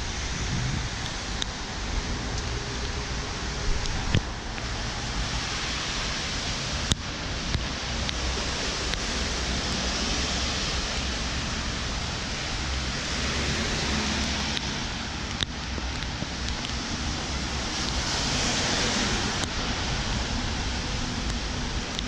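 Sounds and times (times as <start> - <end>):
car tyres on wet road: 0.0 - 22.0
rain hissing: 0.0 - 22.0
wind buffeting microphone: 0.0 - 22.0.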